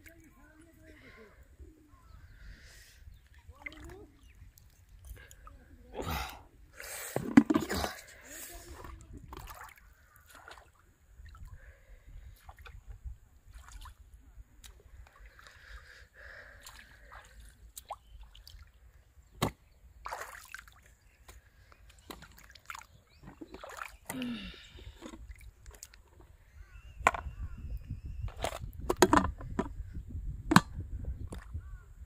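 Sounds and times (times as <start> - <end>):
bucket lids clicking and knocking: 7.1 - 8.0, 27.0 - 27.3, 28.3 - 29.8, 30.5 - 31.4
feet sloshing through water: 7.6 - 11.6, 13.4 - 18.9, 20.0 - 26.1.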